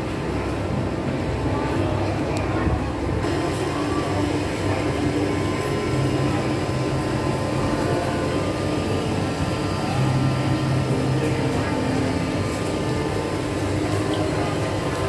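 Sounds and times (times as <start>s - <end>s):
indoor mall hum and rumble: 0.0s - 15.0s.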